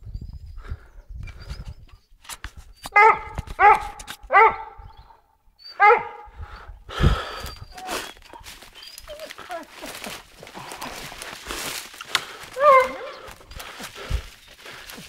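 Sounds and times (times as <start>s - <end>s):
dog barking: 3.0s - 4.8s, 5.8s - 6.3s, 12.6s - 13.2s.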